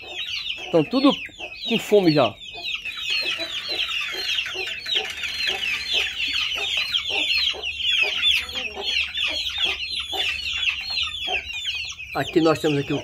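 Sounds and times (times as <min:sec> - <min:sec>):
chicks peeping: 0:00.0 - 0:13.0
hen clucking: 0:00.0 - 0:13.0.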